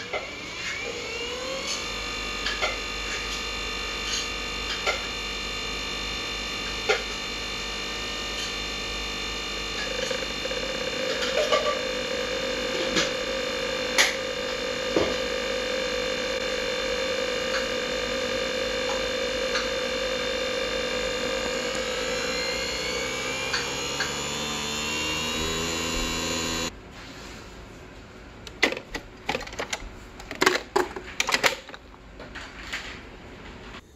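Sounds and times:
coffee machine humming and whining: 0:00.0 - 0:33.9.

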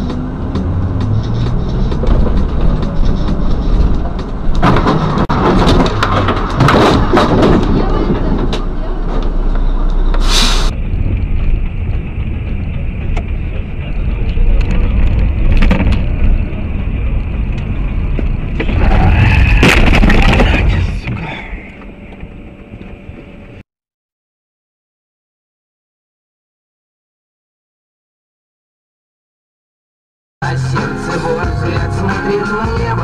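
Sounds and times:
road and engine rumble: 0:00.0 - 0:23.6, 0:30.4 - 0:33.0.

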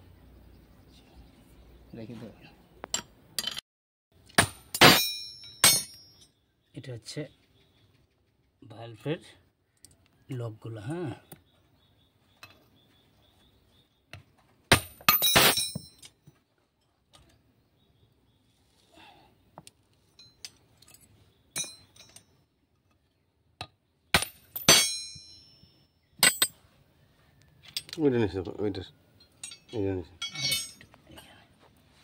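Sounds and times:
metallic clinks of valve parts: 0:20.0 - 0:22.3, 0:29.2 - 0:31.0.

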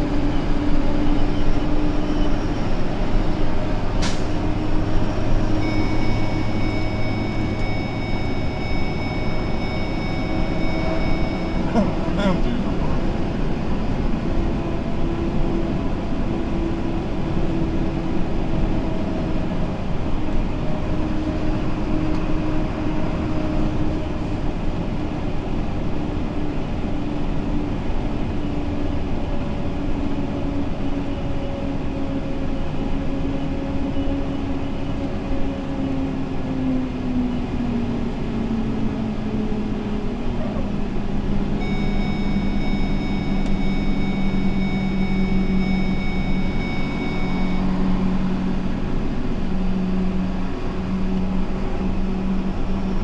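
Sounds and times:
faint drone: 0:00.0 - 0:15.2, 0:29.9 - 0:53.0
vehicle engine and road rumble: 0:00.0 - 0:53.0.

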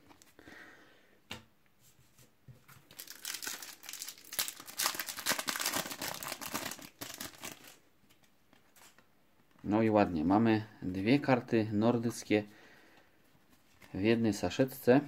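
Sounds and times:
foil wrapper tearing and crinkling: 0:02.9 - 0:07.8.

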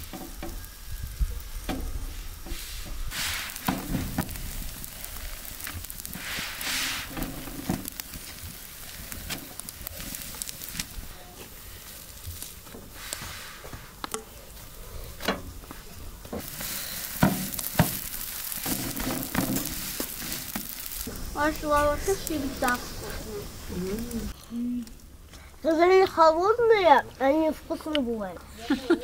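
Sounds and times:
dough sizzling on griddle: 0:00.0 - 0:24.4.

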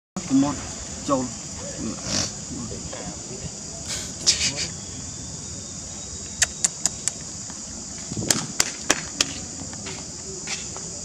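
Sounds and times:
insects droning: 0:00.2 - 0:11.0.

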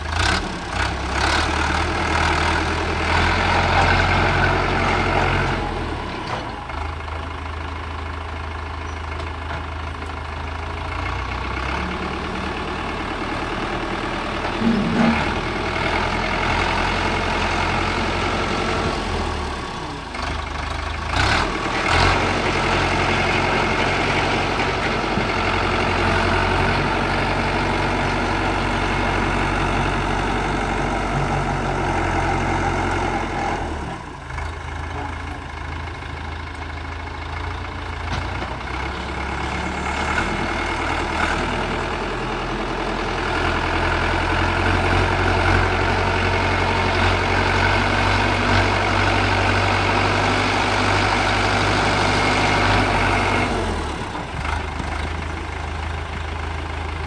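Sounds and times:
tractor diesel engine running: 0:00.0 - 0:57.0
dozer blade pushing earth and rocks: 0:11.0 - 0:20.4.

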